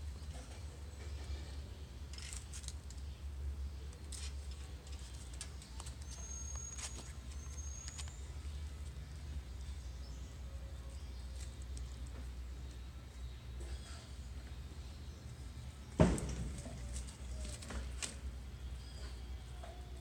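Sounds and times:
leaves crackling and snapping: 0:16.1 - 0:18.2.

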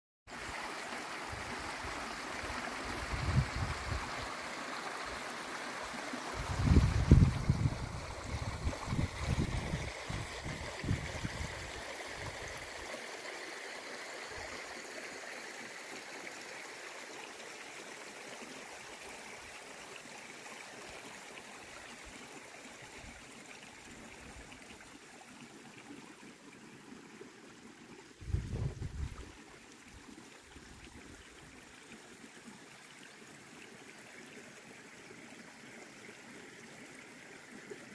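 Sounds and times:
stream water running: 0:00.3 - 0:37.9
wind buffeting microphone: 0:06.4 - 0:12.4, 0:28.2 - 0:29.4.

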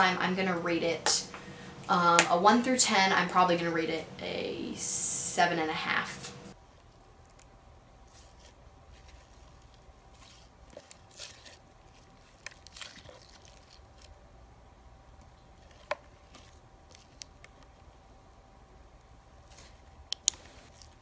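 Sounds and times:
slime squishing and crackling: 0:06.6 - 0:14.3, 0:15.2 - 0:18.4.

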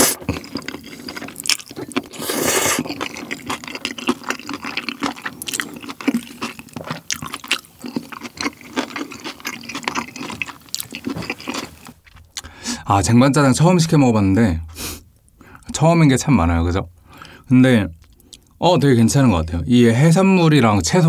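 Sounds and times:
person slurping noodles: 0:00.0 - 0:01.3, 0:01.9 - 0:03.4.

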